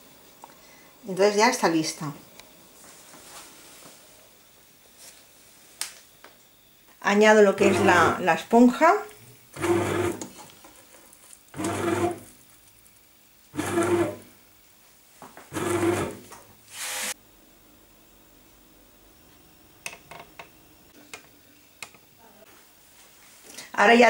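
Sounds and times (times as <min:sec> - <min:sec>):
bread machine kneading motor: 0:07.6 - 0:08.2, 0:09.6 - 0:10.3, 0:11.6 - 0:12.3, 0:13.6 - 0:14.3, 0:15.5 - 0:16.3.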